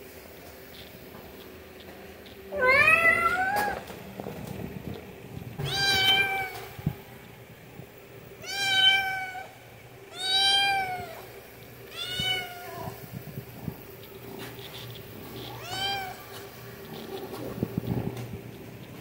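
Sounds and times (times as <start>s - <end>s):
cat meowing: 2.5s - 3.9s, 5.6s - 6.7s, 8.4s - 11.2s, 11.9s - 13.0s, 15.4s - 16.3s.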